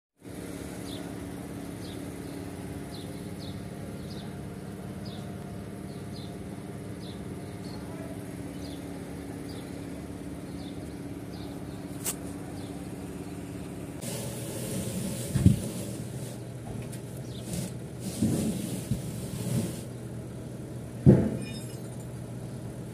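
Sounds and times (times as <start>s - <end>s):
forklift diesel engine idling: 0.3s - 18.2s
sharp click: 12.0s - 12.3s.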